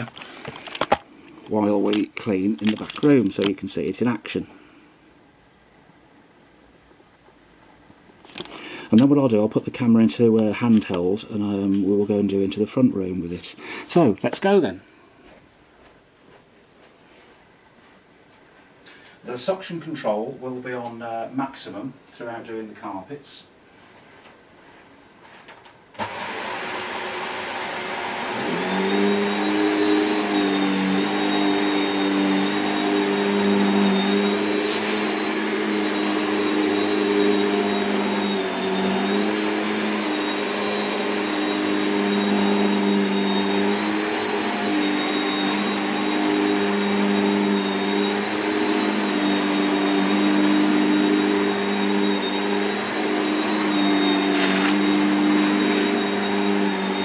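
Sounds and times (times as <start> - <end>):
vacuum cleaner motor whining: 26.0 - 57.0
vacuum pushed across carpet: 26.0 - 57.0.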